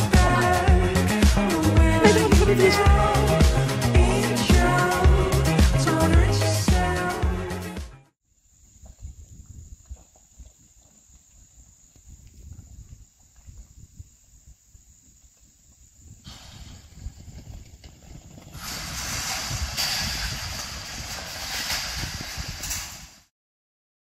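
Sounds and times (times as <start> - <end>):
hooves drumming: 0.0 - 6.3, 8.7 - 14.2, 15.1 - 23.0
rushing hiss: 18.6 - 23.2.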